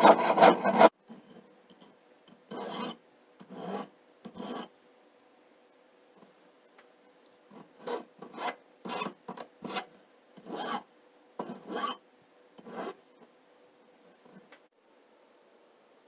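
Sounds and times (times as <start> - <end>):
hand file rasping on metal: 0.0 - 0.9, 2.5 - 4.7, 7.8 - 12.0, 12.6 - 13.0.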